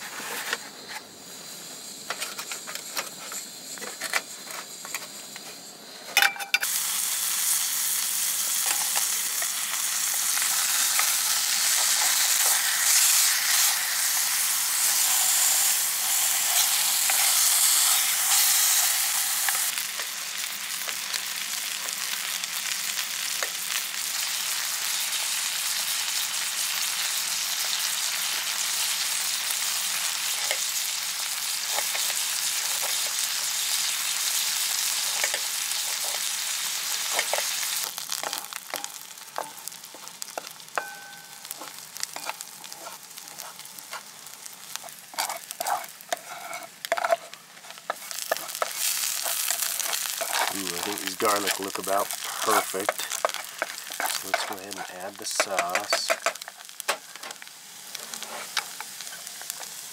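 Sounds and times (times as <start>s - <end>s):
steaks sizzling in a frying pan: 1.2s - 5.4s, 6.2s - 59.9s.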